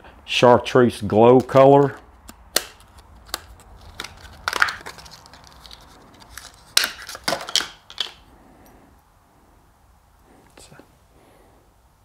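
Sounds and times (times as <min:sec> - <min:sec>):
plastic packaging crinkling: 0:02.6 - 0:08.2.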